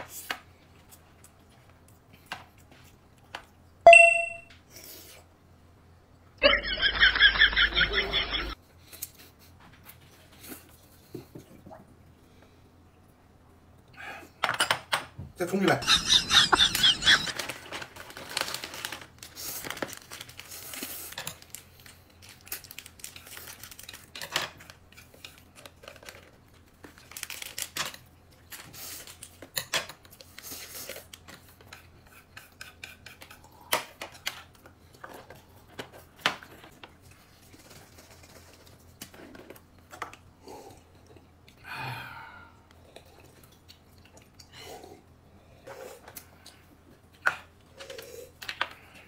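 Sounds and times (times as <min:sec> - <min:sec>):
crinkling and tearing: 0:17.3 - 0:28.0.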